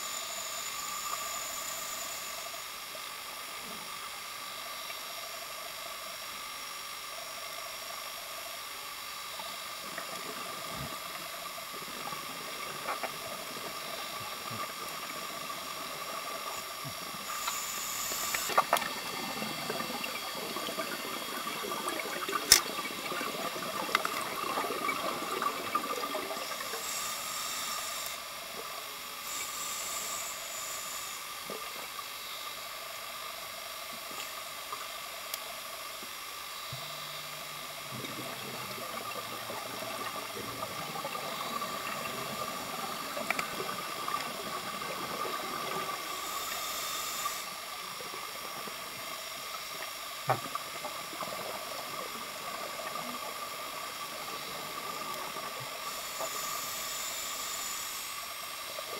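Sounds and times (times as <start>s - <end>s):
regulator inhalation hiss: 0.0s - 6.6s, 8.0s - 58.9s
steady hiss with faint whine: 0.0s - 58.9s
gurgling exhaled bubbles: 9.6s - 27.2s, 36.8s - 57.1s.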